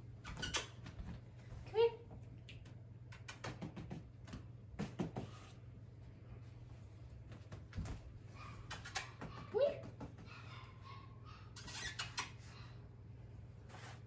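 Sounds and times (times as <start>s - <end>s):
puppy paws tapping on wood floor: 0.3s - 5.5s, 7.1s - 10.5s.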